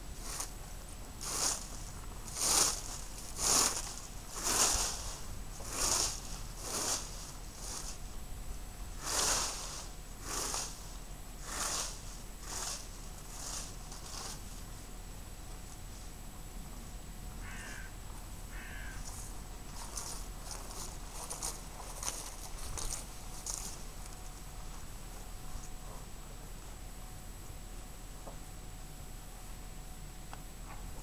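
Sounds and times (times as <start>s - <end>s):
rake sweeping dry leaves: 0.2s - 8.2s, 8.8s - 14.9s, 18.6s - 25.8s
crow cawing: 17.4s - 17.9s, 18.5s - 19.1s.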